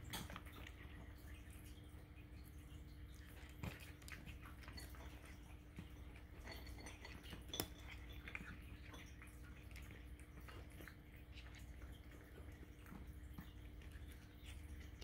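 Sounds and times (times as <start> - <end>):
cat crunching dry kibble: 3.2 - 15.0.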